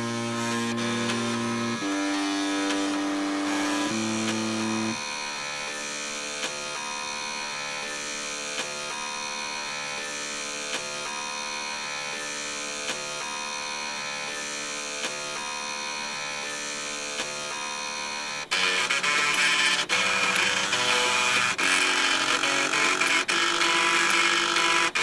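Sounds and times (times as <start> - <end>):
floppy drives buzzing notes: 0.0 - 5.4, 18.5 - 25.0.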